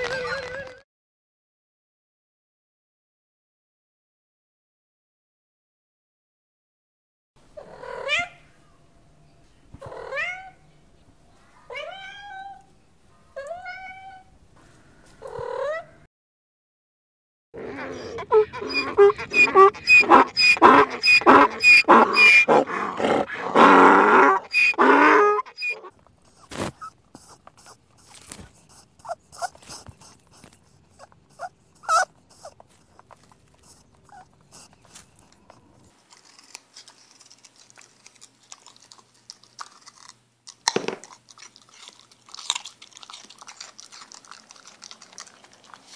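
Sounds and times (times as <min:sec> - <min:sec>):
wild ass braying: 0:17.6 - 0:35.8
dog gnawing rubber: 0:17.9 - 0:22.8, 0:25.5 - 0:45.9
rabbit nibbling hay: 0:26.0 - 0:40.1.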